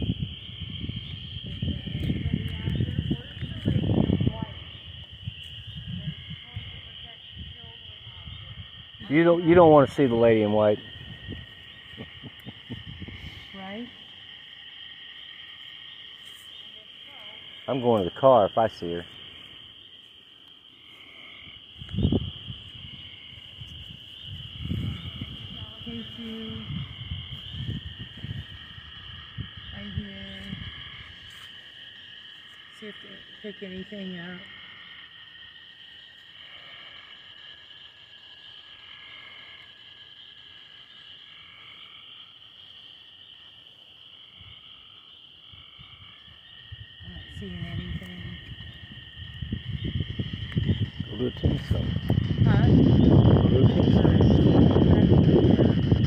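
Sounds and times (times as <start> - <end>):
low rumbles: 0.0 - 16.1, 21.0 - 31.1, 45.6 - 56.0
frog calls: 0.0 - 56.0
insect chorus trilling: 0.0 - 56.0.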